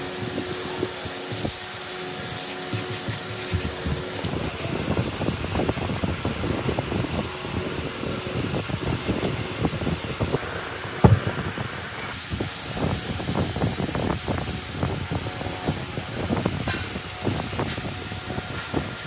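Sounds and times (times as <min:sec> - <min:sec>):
wire brush scrubbing metal: 0:00.4 - 0:10.4, 0:12.2 - 0:19.0
metal scraper rasping on rust: 0:15.3 - 0:19.0.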